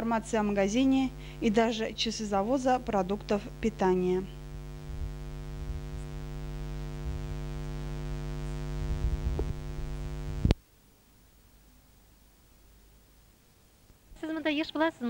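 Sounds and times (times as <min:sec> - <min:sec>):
steady electrical hum: 0:00.0 - 0:15.0
low rumble: 0:04.4 - 0:10.6.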